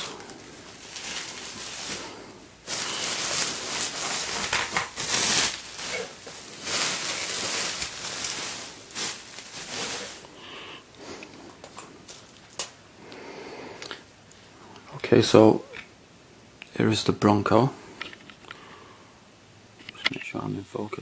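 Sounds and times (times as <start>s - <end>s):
bubble wrap crinkling: 0.0s - 12.8s.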